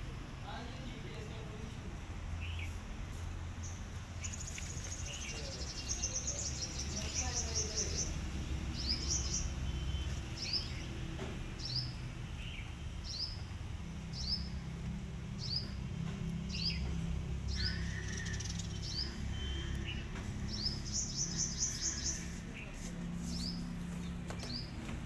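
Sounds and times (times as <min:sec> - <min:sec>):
small bird chirping: 0:03.6 - 0:11.0, 0:16.5 - 0:24.7.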